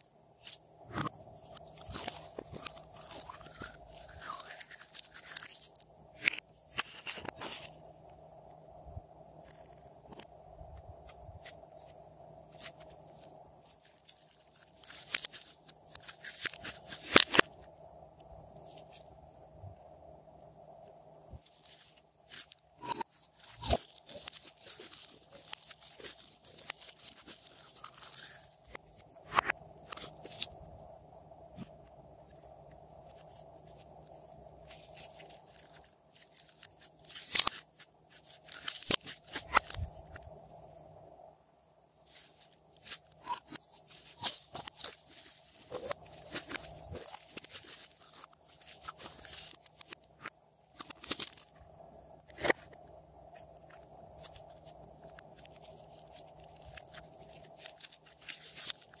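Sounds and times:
slime crackling and popping: 0:34.6 - 0:39.8.

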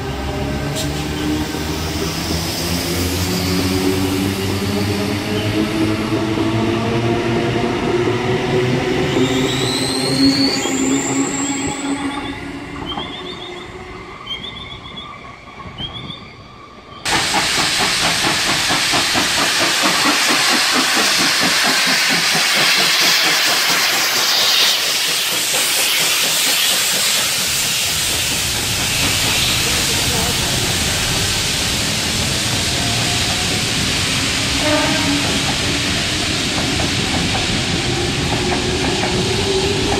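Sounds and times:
steam locomotive hissing and chugging: 0:00.0 - 0:14.9, 0:15.6 - 0:39.9
electric train passing: 0:00.0 - 0:39.9.

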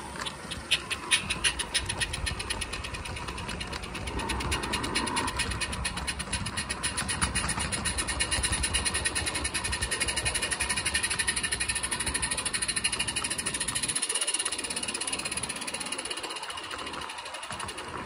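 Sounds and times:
model steam locomotive chuffing: 0:00.0 - 0:18.0.

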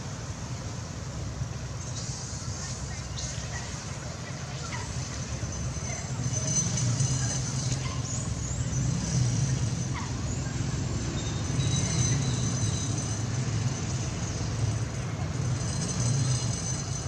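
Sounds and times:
thin high tones: 0:04.4 - 0:17.0.

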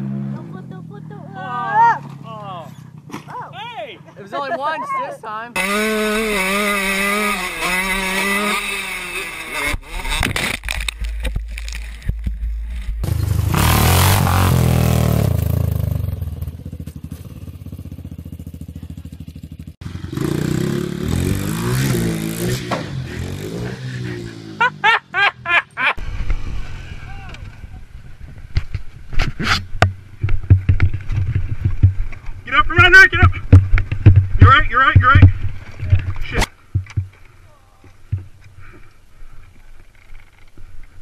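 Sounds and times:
raised voices: 0:00.0 - 0:05.6, 0:26.6 - 0:27.9
dirt bike engines revving: 0:00.0 - 0:11.1, 0:11.7 - 0:39.0.

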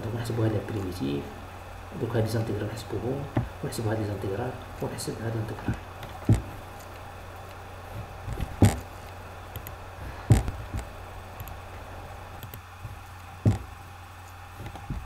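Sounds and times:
low electrical hum: 0:00.0 - 0:15.0
sharp clicks: 0:05.6 - 0:11.8, 0:12.4 - 0:13.8.

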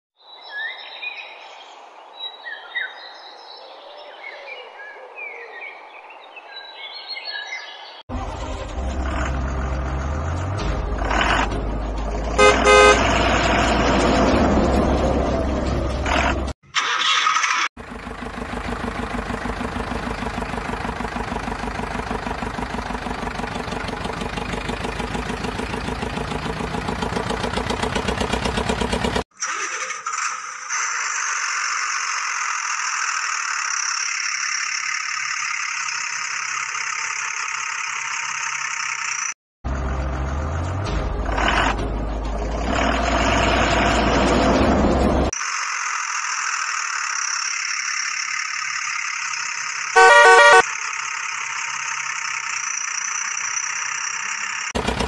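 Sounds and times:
engine running with fast pulse: 0:08.1 - 0:16.5, 0:17.8 - 0:29.3, 0:30.1 - 0:55.0
engine starting up: 0:12.4 - 0:40.0, 0:42.7 - 0:55.0
higher-pitched engine drone: 0:45.4 - 0:55.0.

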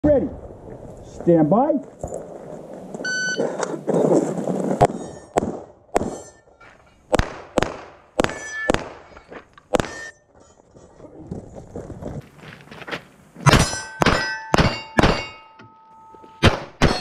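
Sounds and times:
shot timer beep: 0:03.1 - 0:03.4
steel plates ringing: 0:06.1 - 0:07.1, 0:08.4 - 0:09.2, 0:13.4 - 0:17.0
pistol shots: 0:07.1 - 0:09.1, 0:13.5 - 0:15.4, 0:16.4 - 0:17.0.

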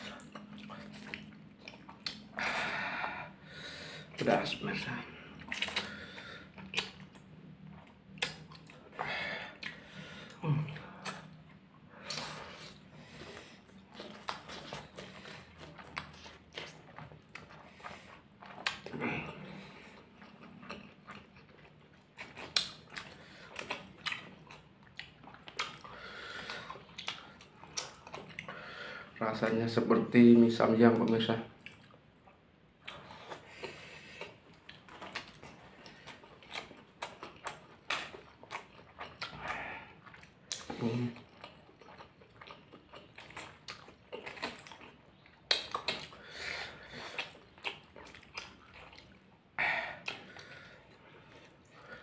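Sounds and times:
lip smacks: 0:00.0 - 0:02.4, 0:05.4 - 0:07.3, 0:07.9 - 0:11.4, 0:18.4 - 0:19.0, 0:22.2 - 0:24.4, 0:32.8 - 0:49.2, 0:49.9 - 0:51.8
wet chewing: 0:00.0 - 0:03.4, 0:04.0 - 0:29.8, 0:30.9 - 0:52.0.

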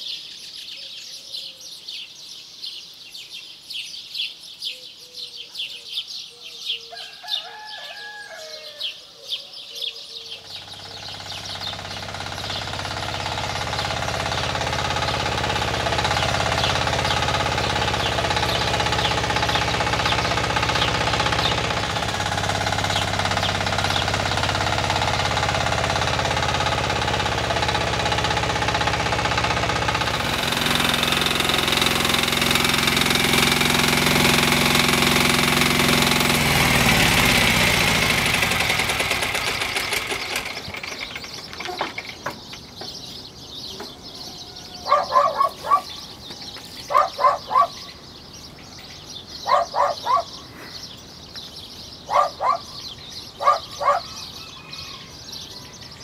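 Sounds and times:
small birds chirping: 0:00.0 - 0:56.0
small cart engine throbbing: 0:10.4 - 0:43.1.

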